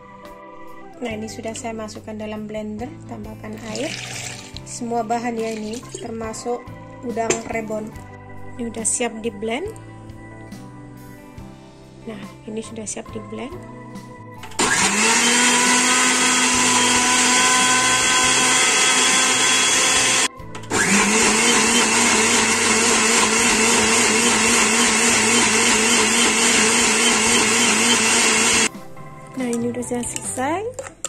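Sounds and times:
blender running: 0:03.8 - 0:04.6, 0:14.4 - 0:28.7.

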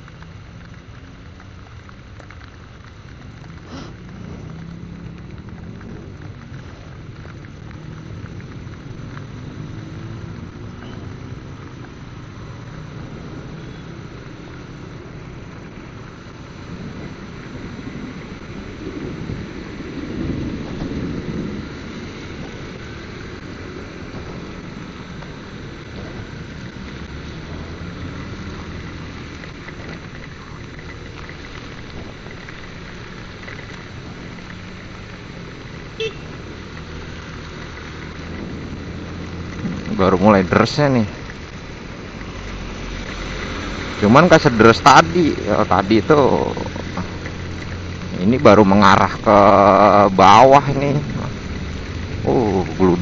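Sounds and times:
rain hissing on wet road: 0:00.0 - 0:53.0
motorcycle engine running: 0:18.8 - 0:48.4.

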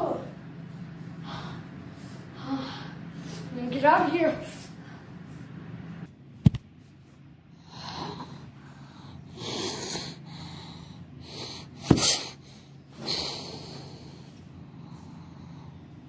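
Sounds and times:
person breathing heavily: 0:01.2 - 0:03.5, 0:07.5 - 0:16.0.

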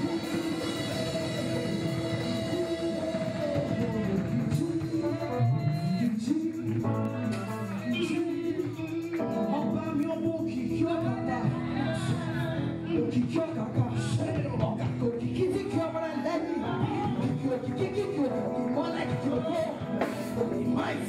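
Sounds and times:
band accompaniment: 0:00.0 - 0:21.0
women singing gospel: 0:10.8 - 0:13.5, 0:14.8 - 0:21.0.

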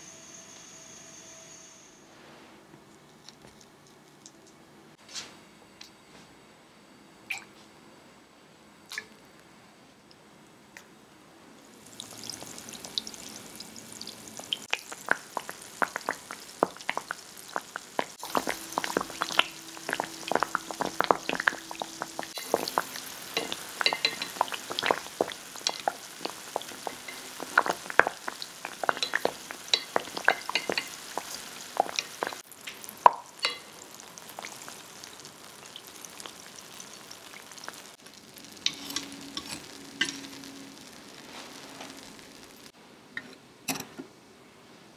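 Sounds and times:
dough deep-frying in oil: 0:11.6 - 0:42.8.

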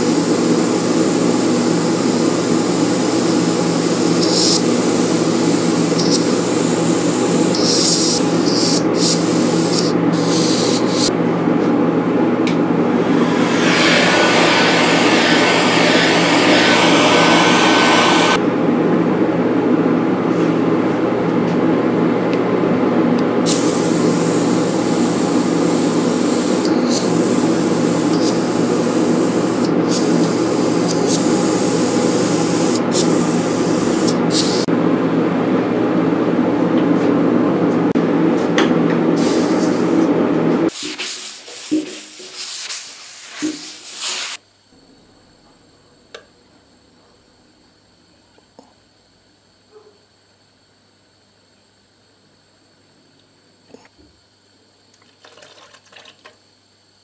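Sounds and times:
airbrush hissing: 0:00.0 - 0:11.1, 0:12.9 - 0:18.4, 0:23.5 - 0:34.7, 0:41.0 - 0:44.4
compressor humming: 0:00.0 - 0:20.0, 0:21.7 - 0:40.7.

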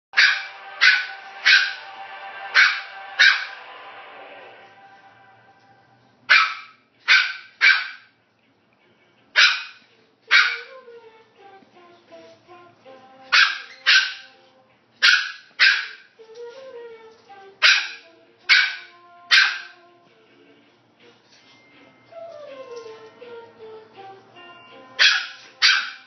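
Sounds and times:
puppy barking: 0:00.2 - 0:01.9, 0:02.5 - 0:03.6, 0:06.3 - 0:08.1, 0:09.4 - 0:10.7, 0:13.3 - 0:14.4, 0:15.0 - 0:16.1, 0:17.6 - 0:19.8, 0:25.0 - 0:26.0.

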